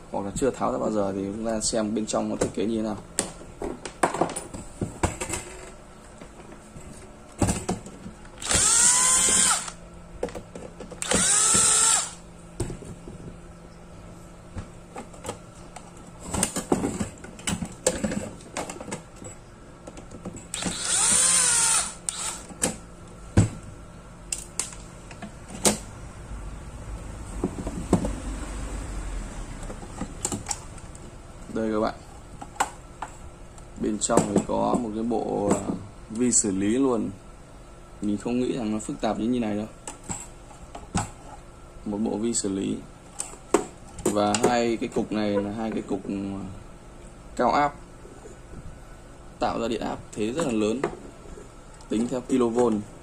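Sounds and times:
electric screwdriver running: 8.4s - 9.8s, 11.0s - 12.2s, 20.5s - 22.5s.

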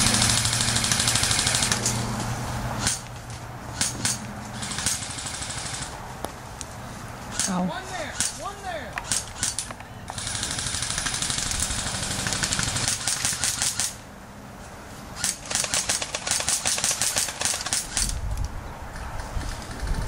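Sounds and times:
airsoft gun full-auto bursts: 0.0s - 1.9s, 3.8s - 6.0s, 7.4s - 14.0s, 15.2s - 18.2s.

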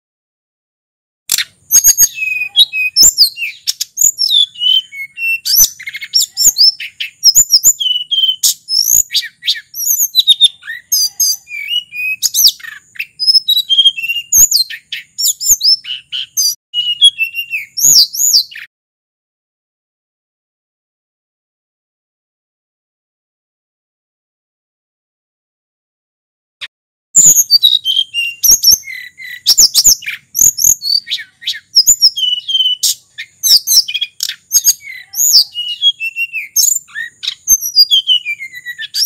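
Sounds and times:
sharp bird ticks: 1.3s - 2.0s
bird singing whistled phrases: 1.3s - 18.7s, 27.2s - 39.0s.

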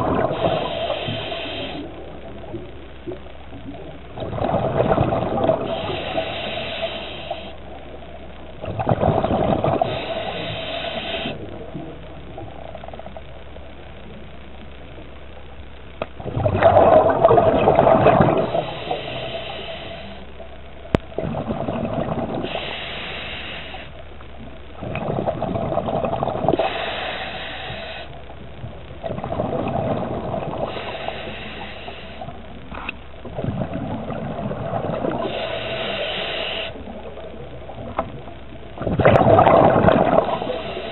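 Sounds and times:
exhaled bubbles rushing: 0.0s - 6.4s, 8.6s - 13.1s, 16.2s - 19.2s, 21.0s - 22.7s, 24.4s - 26.8s, 28.6s - 31.1s, 33.2s - 35.7s, 36.8s - 40.9s
regulator inhale hiss: 0.2s - 2.2s, 5.6s - 7.9s, 9.7s - 11.7s, 18.3s - 20.4s, 22.4s - 24.0s, 26.5s - 28.2s, 30.5s - 32.9s, 35.1s - 36.9s, 40.1s - 40.9s.

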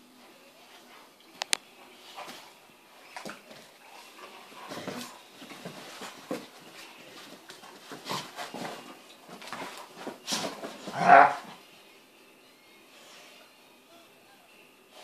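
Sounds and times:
dogs scuffling: 0.7s - 11.6s.

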